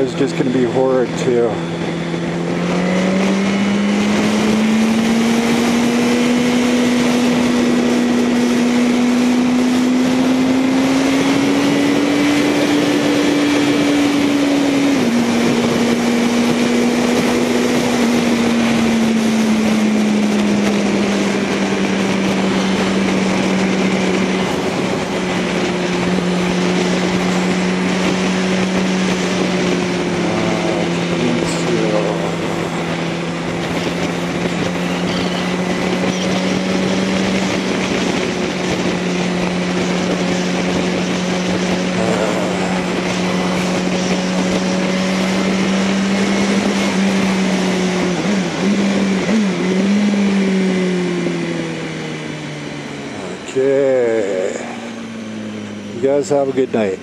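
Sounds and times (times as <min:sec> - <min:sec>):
motorcycle engine cruising: 0:00.0 - 0:57.0
wind rushing: 0:01.4 - 0:53.8.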